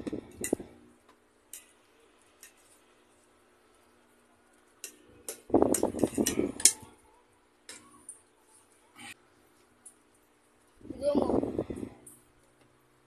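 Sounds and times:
forks clinking on plates: 4.8s - 7.0s.

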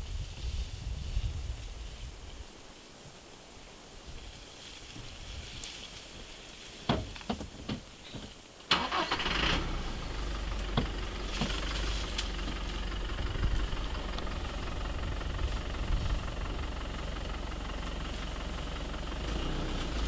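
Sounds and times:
car engine starting and idling: 8.7s - 20.0s.

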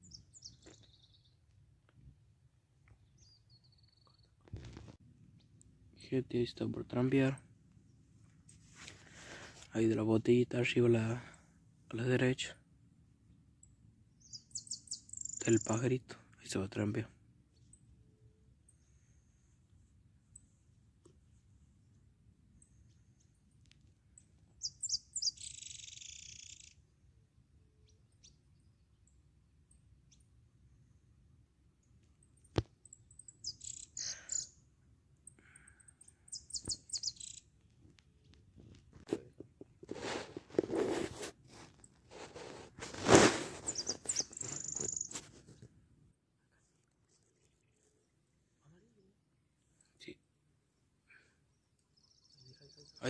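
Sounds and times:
songbird chirping: 0.0s - 9.6s, 13.2s - 39.4s, 41.1s - 45.6s, 46.7s - 53.0s
microphone handling rustle: 4.4s - 5.0s, 37.8s - 45.8s
buzzy bird trill: 14.2s - 15.9s, 24.6s - 26.9s, 32.9s - 34.6s, 35.6s - 37.5s, 43.0s - 45.2s
faint high bird chips: 24.6s - 26.8s, 32.9s - 34.6s, 35.3s - 37.5s, 40.0s - 45.6s.

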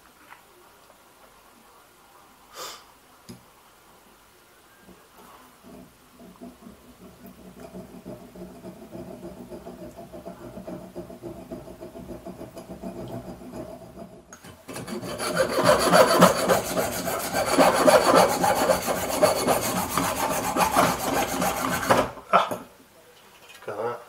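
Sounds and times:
hacksaw sawing through metal: 6.2s - 22.2s.

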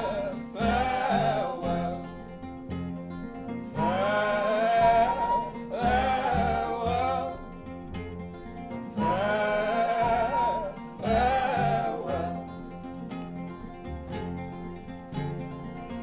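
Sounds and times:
man singing long notes: 0.0s - 8.0s, 8.9s - 13.0s
plucked classical guitar: 0.0s - 16.0s.

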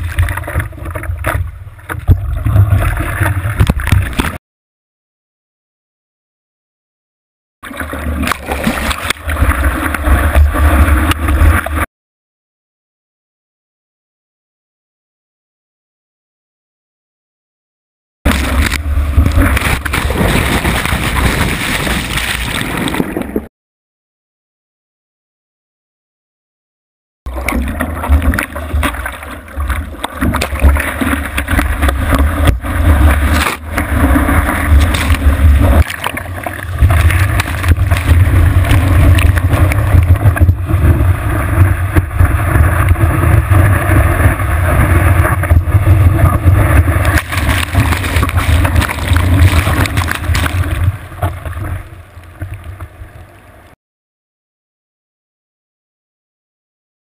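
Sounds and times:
surf rushing and splashing: 7.7s - 11.8s, 18.3s - 23.4s, 27.3s - 53.7s.

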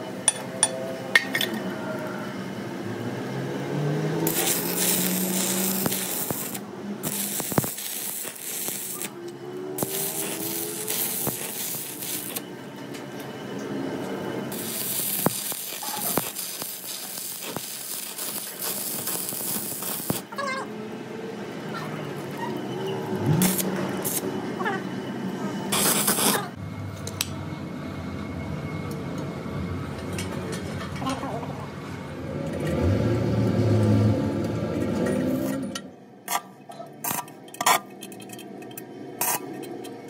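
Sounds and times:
welding arc crackling and hissing: 4.2s - 9.2s, 9.8s - 12.5s, 14.5s - 20.3s, 23.4s - 24.3s, 25.7s - 26.6s
sharp welding pops: 4.3s - 9.1s, 9.8s - 12.4s, 14.5s - 20.3s, 23.4s - 24.2s, 25.7s - 26.4s.

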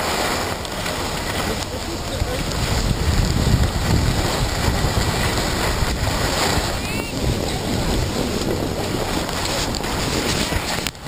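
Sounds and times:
skis sliding over snow: 0.0s - 11.0s
wind buffeting microphone: 0.0s - 11.0s.

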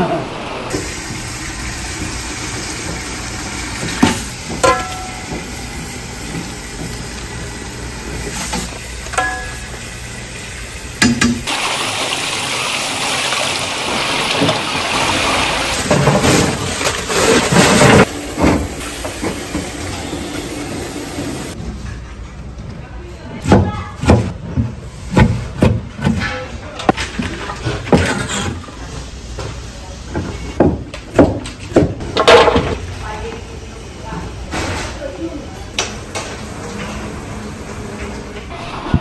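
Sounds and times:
kitchen hum: 0.0s - 39.0s
tap running into sink: 11.0s - 11.5s.

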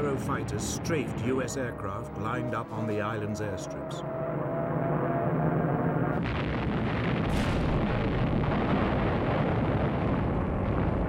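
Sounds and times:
aircraft engine drone: 0.0s - 6.3s
explosions: 6.2s - 11.0s
gunfire: 7.2s - 8.2s.

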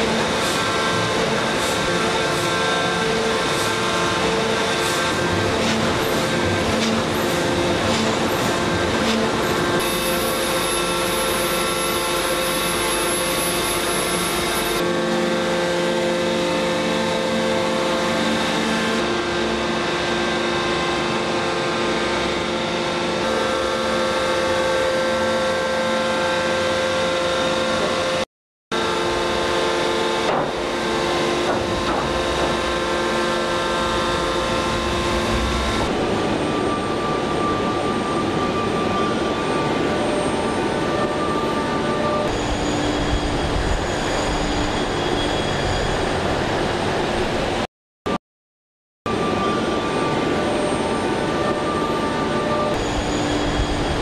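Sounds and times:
machinery hum and rumble: 0.0s - 28.2s, 28.8s - 47.7s, 49.1s - 54.0s
held whining tones: 28.9s - 39.2s.

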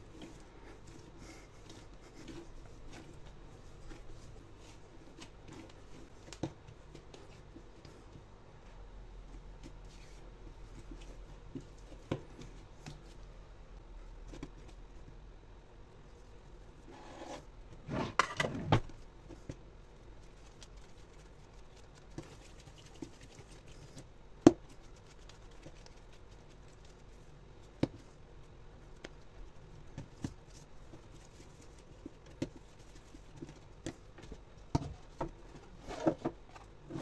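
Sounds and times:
hands rubbing and patting dough: 0.0s - 13.5s, 18.9s - 37.0s.

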